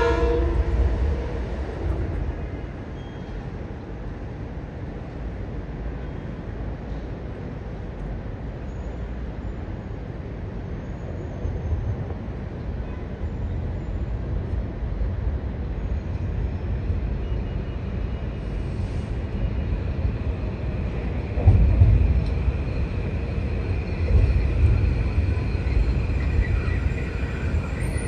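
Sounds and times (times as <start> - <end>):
train rumbling: 0.0 - 28.0.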